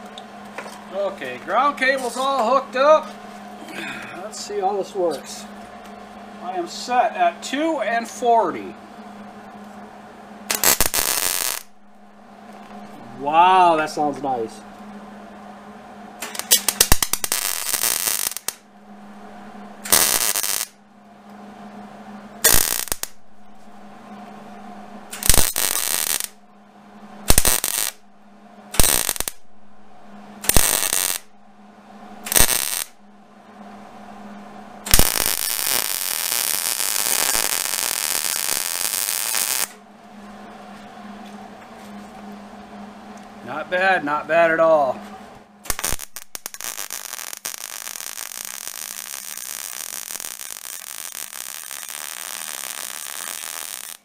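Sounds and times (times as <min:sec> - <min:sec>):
steady low hum: 0:00.0 - 0:54.0
welding arc crackling: 0:10.5 - 0:14.5, 0:16.2 - 0:18.7, 0:19.4 - 0:20.8, 0:22.4 - 0:24.0, 0:24.8 - 0:26.4, 0:27.2 - 0:28.0, 0:28.7 - 0:29.5, 0:30.4 - 0:31.3, 0:32.1 - 0:33.0, 0:34.8 - 0:39.8, 0:45.6 - 0:54.0.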